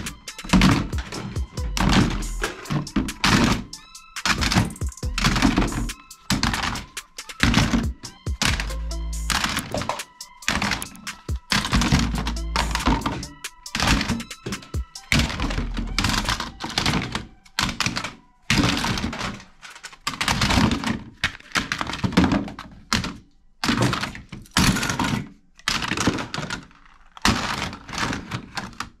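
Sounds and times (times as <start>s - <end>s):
plastic toys clattering into bin: 0.0s - 8.7s, 9.4s - 10.9s, 12.8s - 29.0s.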